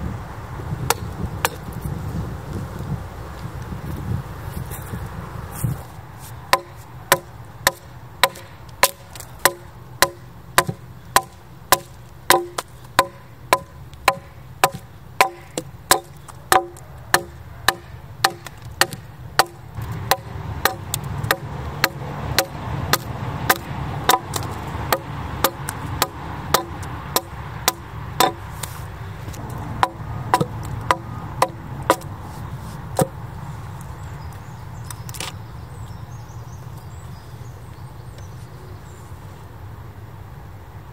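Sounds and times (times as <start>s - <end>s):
axe chopping wood: 0.9s - 1.6s, 6.5s - 32.2s, 32.9s - 33.2s.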